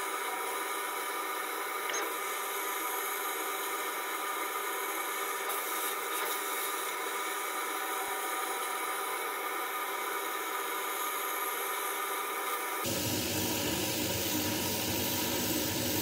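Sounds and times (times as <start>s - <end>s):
laser cutter air hiss: 0.0s - 16.0s.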